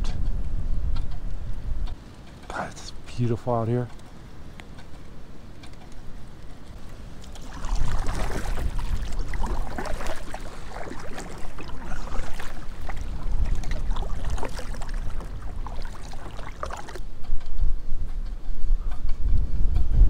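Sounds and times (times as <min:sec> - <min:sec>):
wind buffeting microphone: 0:00.0 - 0:20.0
paddle strokes splashing: 0:04.8 - 0:17.2
water slapping plastic hull: 0:06.8 - 0:17.1.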